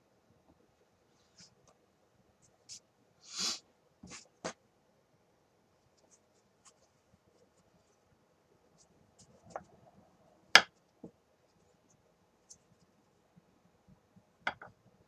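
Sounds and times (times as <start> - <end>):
wooden knocks on a work board: 14.5 - 14.7.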